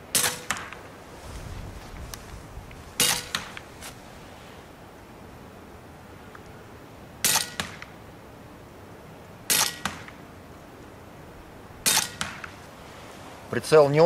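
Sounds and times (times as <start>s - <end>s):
air rifle shots: 0.1s - 0.9s, 3.0s - 3.7s, 7.2s - 8.0s, 9.5s - 10.2s, 11.8s - 12.6s.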